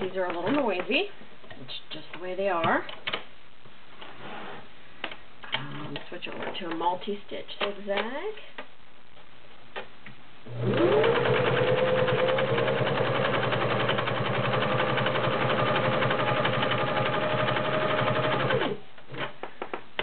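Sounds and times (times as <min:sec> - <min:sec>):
sewing machine running: 0:10.5 - 0:18.8.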